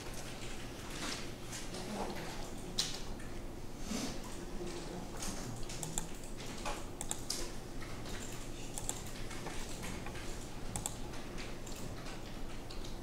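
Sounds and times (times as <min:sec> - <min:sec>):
computer mouse clicks: 0:05.6 - 0:07.5, 0:08.1 - 0:13.0
keyboard clicks: 0:05.6 - 0:07.5, 0:08.1 - 0:13.0.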